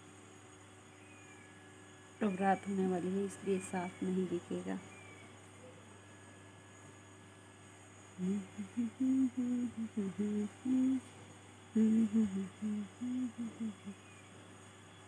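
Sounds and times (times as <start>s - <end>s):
person humming a tune: 8.2s - 11.1s, 11.7s - 14.1s.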